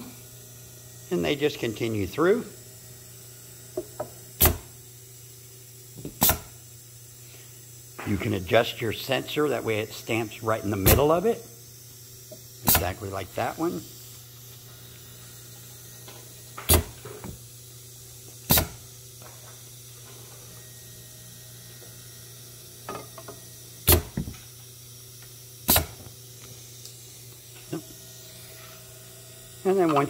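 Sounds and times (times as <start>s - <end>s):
machine humming: 0.0s - 30.0s
pneumatic stamping strokes: 3.7s - 4.8s, 6.0s - 6.6s, 10.7s - 11.4s, 12.3s - 17.5s, 18.2s - 20.5s, 22.8s - 24.6s, 25.6s - 26.8s.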